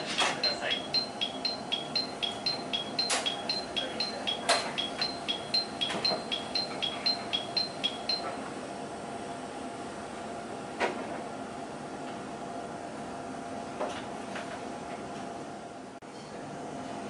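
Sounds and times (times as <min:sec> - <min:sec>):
two-tone electronic warning beeps: 0:00.0 - 0:08.4
sharp clicks: 0:00.1 - 0:08.3.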